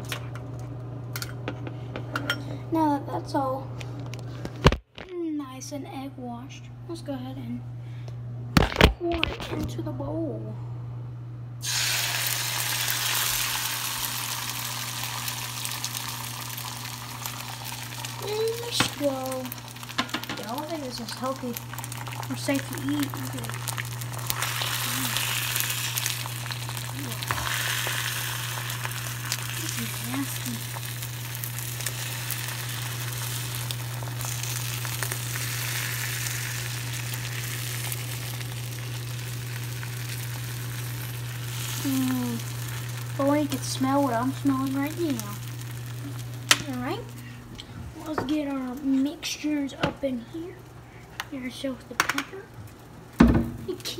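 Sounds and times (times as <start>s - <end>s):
steady low hum: 0.0s - 53.9s
eggs sizzling in a frying pan: 11.6s - 53.9s.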